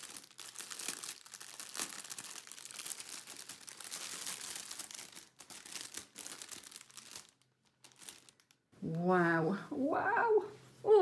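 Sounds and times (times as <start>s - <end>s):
plastic packaging crinkling: 0.0s - 8.7s.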